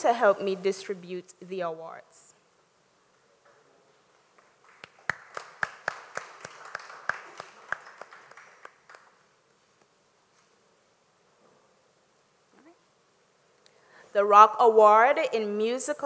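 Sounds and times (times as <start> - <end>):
audience clapping: 4.2 - 9.3.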